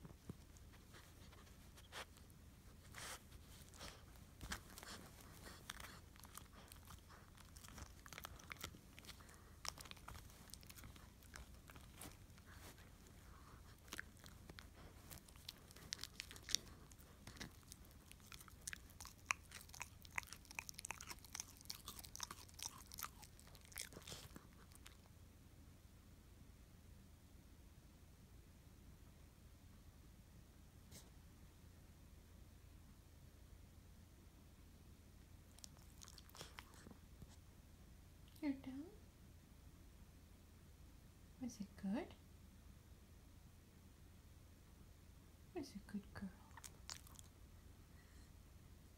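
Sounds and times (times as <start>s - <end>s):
dog crunching on a bone: 3.0s - 25.1s, 35.5s - 36.9s, 46.5s - 47.3s.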